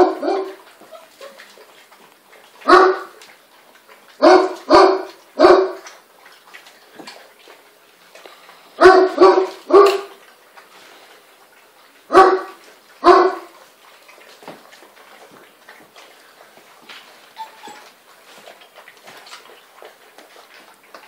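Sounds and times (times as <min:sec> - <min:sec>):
puppies barking: 0:00.0 - 0:03.3, 0:03.9 - 0:06.0, 0:08.8 - 0:10.2, 0:12.0 - 0:13.6, 0:17.3 - 0:18.5.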